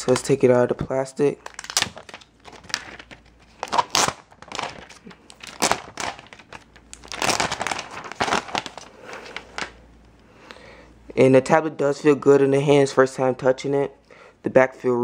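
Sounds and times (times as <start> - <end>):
plastic wrapping crinkling: 1.3 - 9.8.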